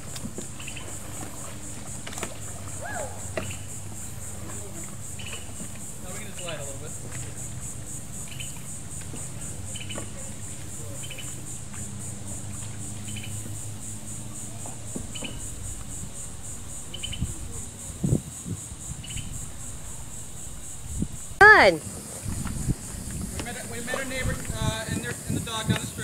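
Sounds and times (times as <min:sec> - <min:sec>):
insect chorus buzzing: 0:00.0 - 0:26.0
short insect chirp: 0:00.0 - 0:26.0.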